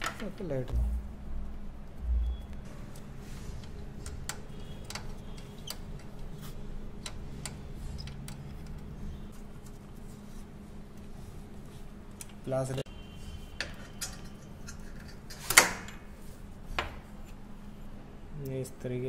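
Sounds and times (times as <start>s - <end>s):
steady low hum: 0.4s - 13.6s.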